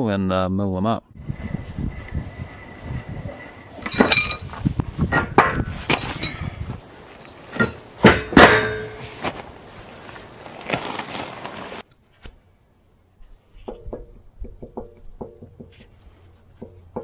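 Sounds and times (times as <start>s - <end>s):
wheel clanking on gravel: 1.3s - 11.8s
metallic ring: 1.9s - 6.5s, 7.5s - 9.1s.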